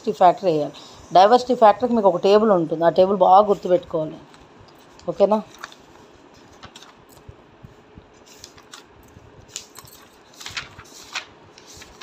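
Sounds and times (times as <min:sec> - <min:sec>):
pages rustling: 0:04.3 - 0:12.0.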